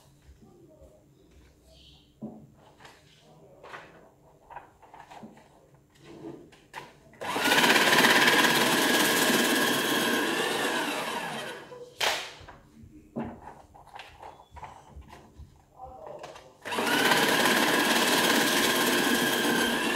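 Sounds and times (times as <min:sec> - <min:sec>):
small electric motor running: 0:07.2 - 0:11.7, 0:16.7 - 0:19.9.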